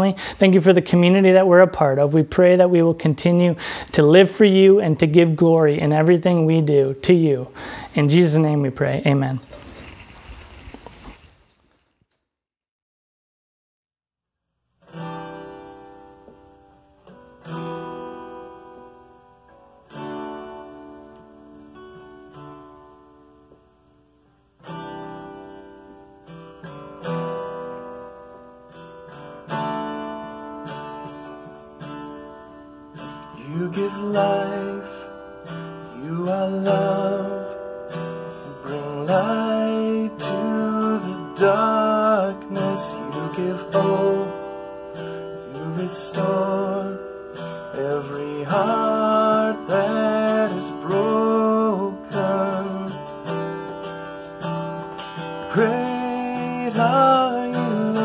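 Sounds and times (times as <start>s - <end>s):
strummed acoustic guitar: 0.0s - 11.2s, 14.8s - 58.0s
person singing: 33.2s - 53.6s, 55.5s - 58.0s.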